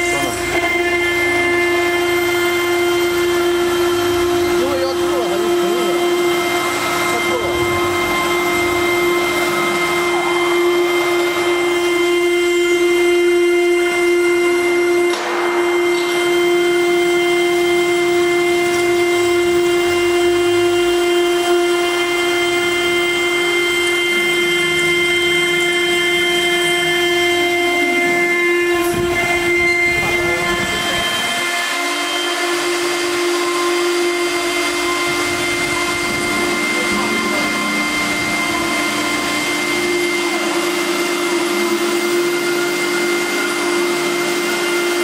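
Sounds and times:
router spindle high-pitched whine: 0:00.0 - 0:45.0.

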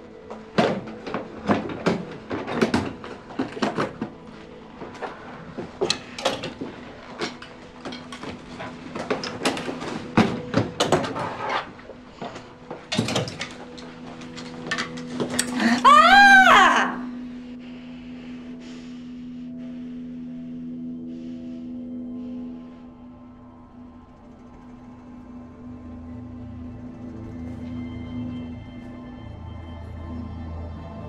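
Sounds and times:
quiet background music: 0:00.0 - 0:31.0
clothes rustling and thudding: 0:00.2 - 0:15.6.

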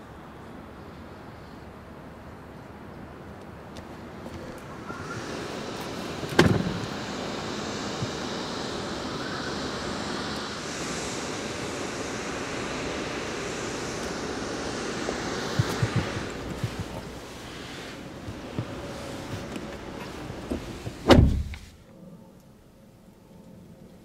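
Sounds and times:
rushing wind: 0:02.8 - 0:21.8
sharp thump: 0:06.3 - 0:06.9, 0:20.5 - 0:21.7.

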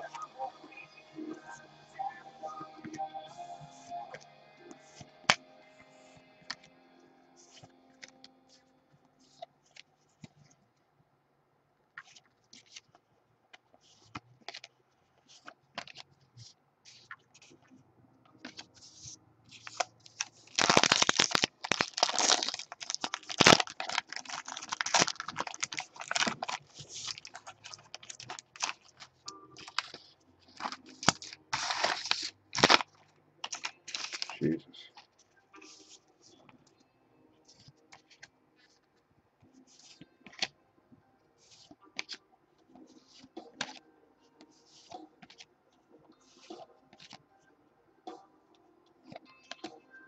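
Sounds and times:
foil wrapper crackling: 0:19.6 - 0:35.8
cards clicking: 0:41.5 - 0:42.2, 0:43.0 - 0:43.8.

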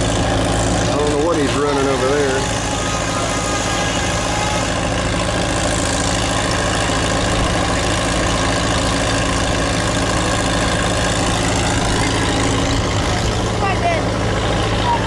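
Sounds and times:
crawler tractor engine running: 0:00.0 - 0:15.0.

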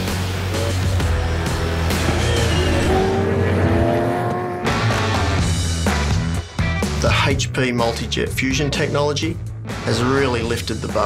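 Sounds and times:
background music: 0:00.0 - 0:11.0
race car engine accelerating: 0:00.5 - 0:05.6.

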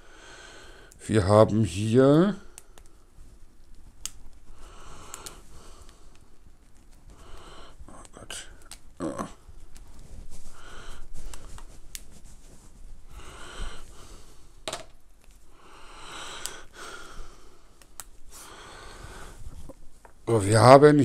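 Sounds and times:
man breathing: 0:00.0 - 0:01.0, 0:04.5 - 0:06.4, 0:07.1 - 0:08.7, 0:09.3 - 0:14.7, 0:15.4 - 0:19.7
cables clicking and handling noise: 0:02.2 - 0:20.4.

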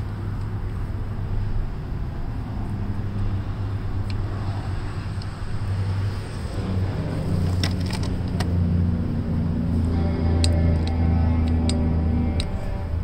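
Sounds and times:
low mechanical rumble with hum: 0:00.0 - 0:13.0.

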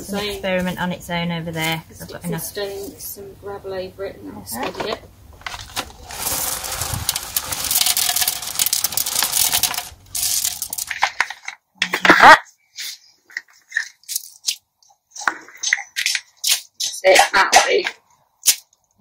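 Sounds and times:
gravel pouring from plastic bag: 0:05.5 - 0:11.3.

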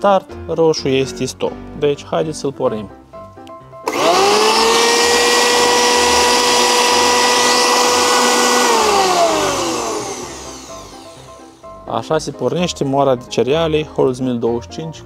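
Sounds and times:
grain mill motor whining: 0:03.9 - 0:11.6.

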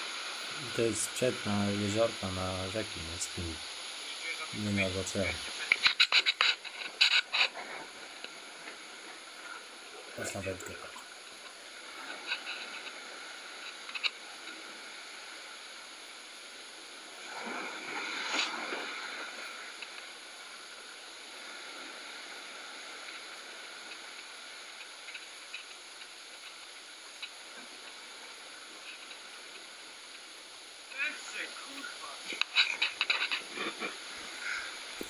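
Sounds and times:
wave surging: 0:00.0 - 0:35.0
sea surf washing against rocks: 0:16.8 - 0:25.2.

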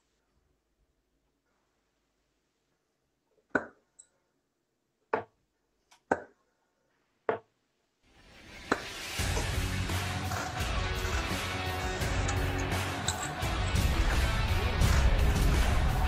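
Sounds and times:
music: 0:08.1 - 0:16.0.

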